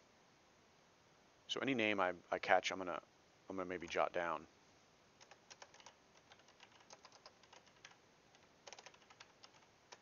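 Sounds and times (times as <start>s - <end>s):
faint typing on keyboard: 5.2s - 10.0s.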